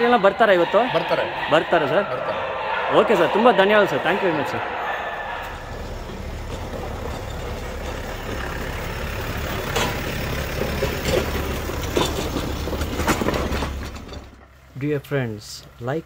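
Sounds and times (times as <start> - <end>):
truck engine running: 0.0 - 16.0
knocks and rattles: 5.5 - 14.6.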